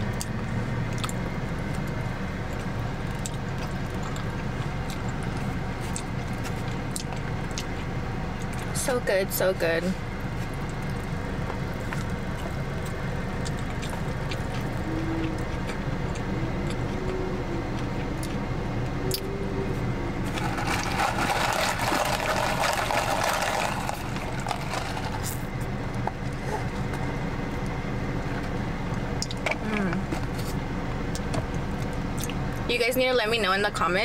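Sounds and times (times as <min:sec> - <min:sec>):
chewing noodles: 0:01.0 - 0:08.7, 0:10.3 - 0:18.4, 0:20.2 - 0:27.1
loud slurping: 0:20.2 - 0:25.5.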